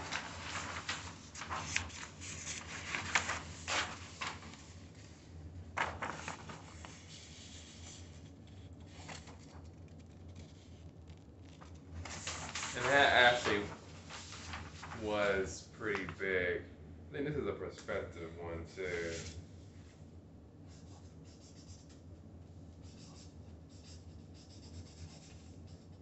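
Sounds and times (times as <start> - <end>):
paper rustling and crackling: 0.0 - 16.2.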